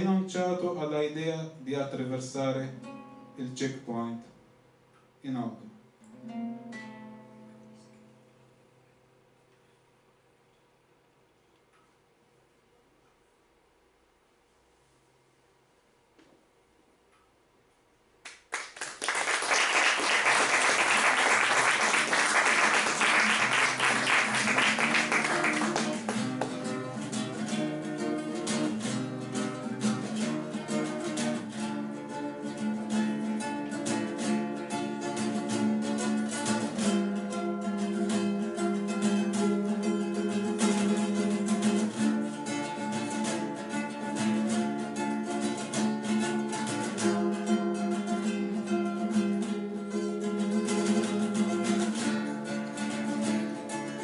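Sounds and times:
classical guitar strumming and picking: 0:00.0 - 0:04.3, 0:05.3 - 0:08.5, 0:19.6 - 0:54.0.

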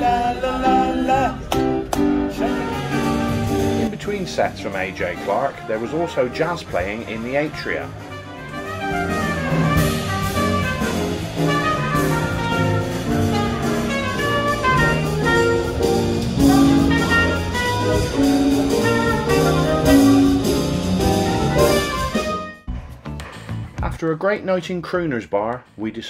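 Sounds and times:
trumpet melody: 0:00.0 - 0:22.7
drum kit with cymbal strokes: 0:08.8 - 0:23.7.

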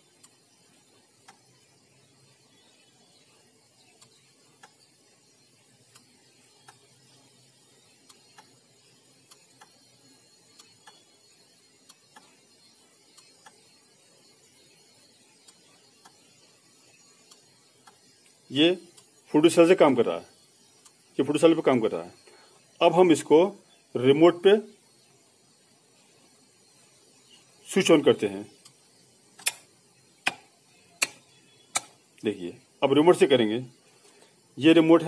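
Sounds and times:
faint low hum: 0:00.0 - 0:35.0
faint short clicks: 0:29.4 - 0:32.0.

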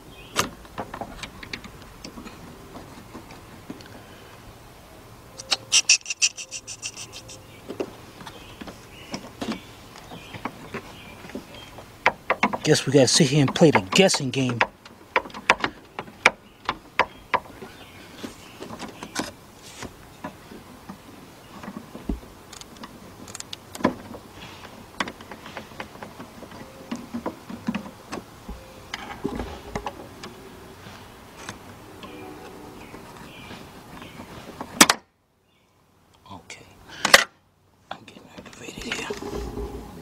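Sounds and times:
hands handling parts clicking: 0:22.5 - 0:24.0.

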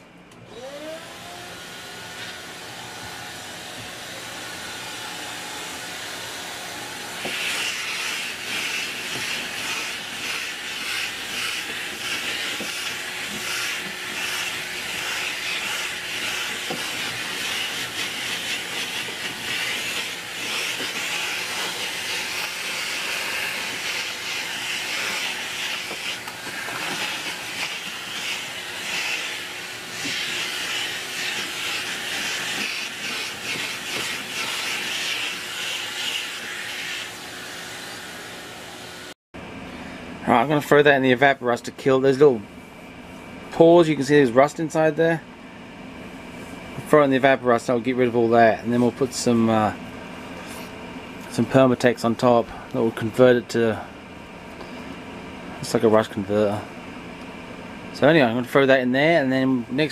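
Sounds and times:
vacuum cleaner suction hiss: 0:00.5 - 0:39.2.

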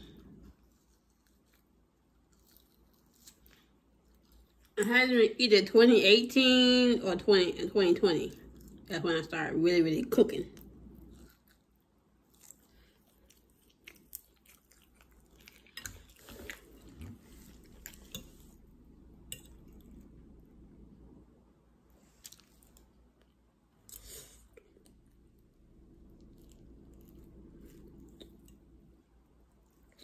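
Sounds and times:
person chewing food: 0:00.0 - 0:04.8, 0:08.3 - 0:08.9, 0:10.5 - 0:20.6, 0:21.9 - 0:30.0.

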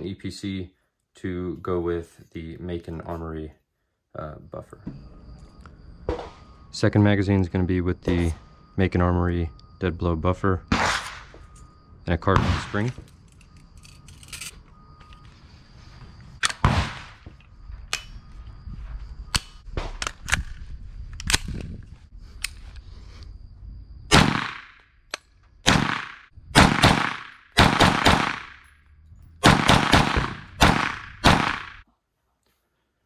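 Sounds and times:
carbine gunshots ringing: 0:12.2 - 0:13.0, 0:24.1 - 0:24.7, 0:25.7 - 0:28.7, 0:29.4 - 0:31.8.

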